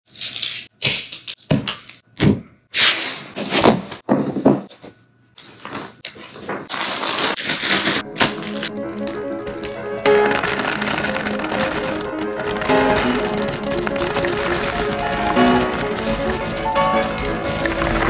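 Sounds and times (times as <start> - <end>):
paper and plastic rustling: 5.4 - 18.0.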